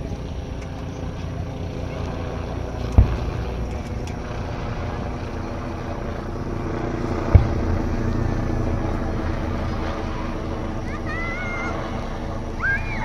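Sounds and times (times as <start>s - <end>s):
low background rumble: 0.0s - 13.0s
distant firework boom: 2.9s - 5.2s, 7.2s - 8.5s.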